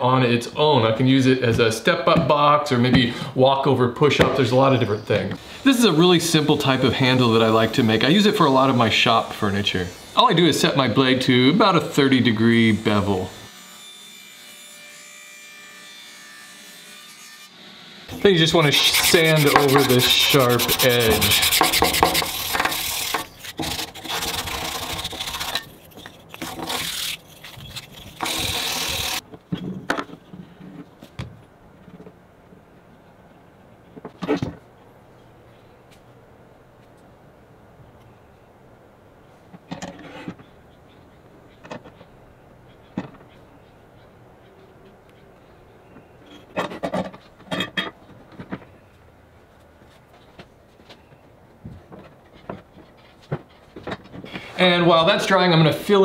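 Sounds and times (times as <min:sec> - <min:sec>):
hand-sanding wood: 0:18.2 - 0:29.2
rattling scraping clatter: 0:18.8 - 0:29.2.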